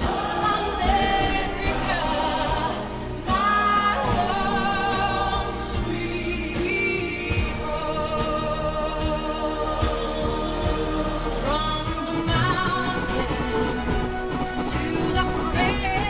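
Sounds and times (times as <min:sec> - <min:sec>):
choir-like singing: 0:00.0 - 0:16.0
sustained musical backing: 0:00.0 - 0:16.0
sharp percussive hits: 0:12.3 - 0:16.0.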